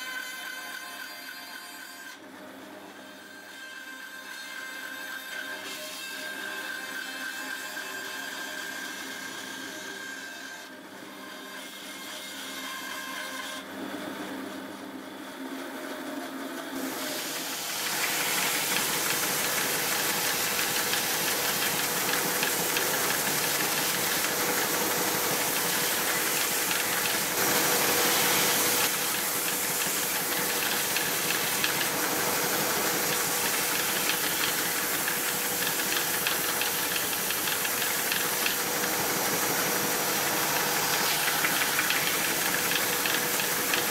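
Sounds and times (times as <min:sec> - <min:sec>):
bandsaw running: 0:16.6 - 0:43.9
belt sander running: 0:17.2 - 0:43.9.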